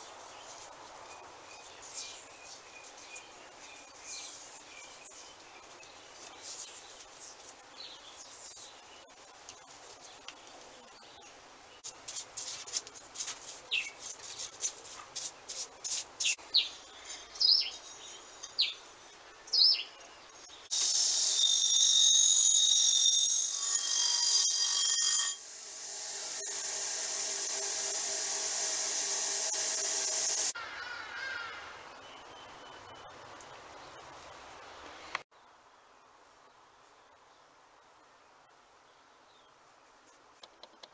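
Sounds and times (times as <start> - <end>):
small birds chirping: 13.6 - 20.8
bench grinder wire wheel whine: 20.7 - 30.6.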